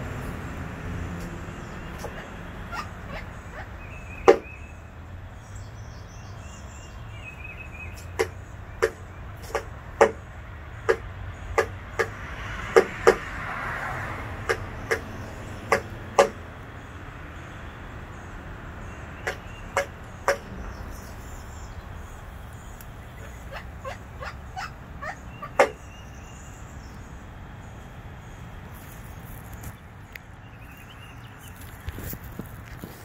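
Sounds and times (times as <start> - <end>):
woodpecker knocking on glass: 4.3 - 4.5, 8.0 - 13.3, 15.7 - 16.4, 19.2 - 20.8, 25.5 - 25.8.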